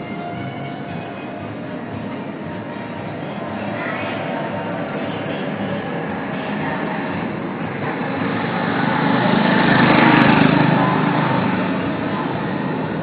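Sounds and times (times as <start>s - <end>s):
motorbike passing: 0.0s - 13.0s
street traffic: 0.0s - 13.0s.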